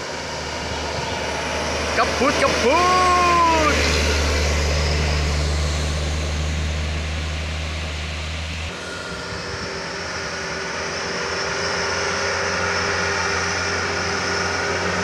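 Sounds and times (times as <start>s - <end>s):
truck engines pulling uphill: 0.0s - 15.0s.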